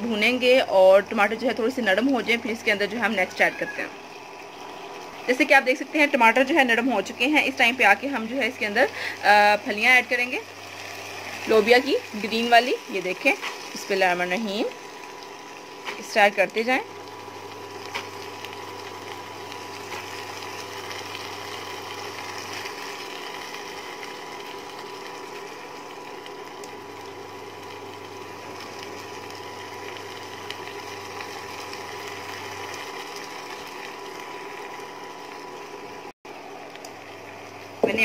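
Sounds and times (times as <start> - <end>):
cooktop fan hum: 0.0 - 38.0
low electrical buzz: 0.0 - 38.0
thin high whine: 2.9 - 4.1.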